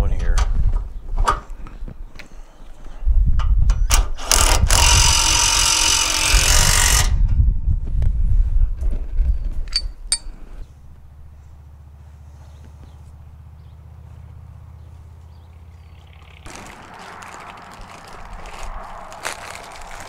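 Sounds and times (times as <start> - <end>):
power tool running: 4.2 - 7.1.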